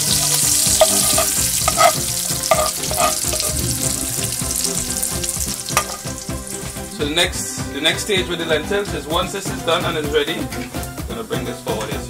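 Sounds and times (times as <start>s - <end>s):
spices sizzling in hot oil: 0.0s - 7.7s
metal spoon knocking against pan: 0.6s - 3.7s, 5.7s - 6.2s.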